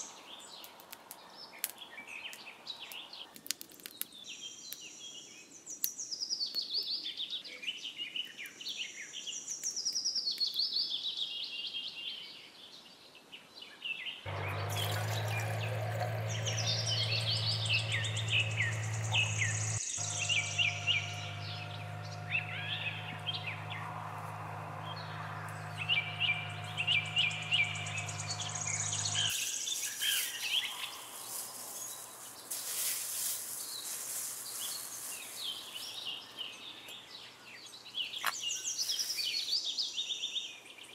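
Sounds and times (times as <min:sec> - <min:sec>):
songbirds chirping: 0:00.0 - 0:40.9
steady low hum: 0:14.3 - 0:29.3.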